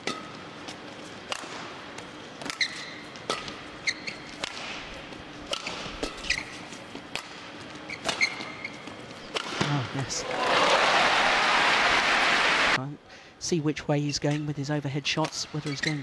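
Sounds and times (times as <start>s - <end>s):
shoes squeaking on court: 2.0s - 9.3s, 15.6s - 16.0s
rackets striking shuttlecock: 4.3s - 6.2s, 9.3s - 9.6s
crowd hum: 10.0s - 12.8s.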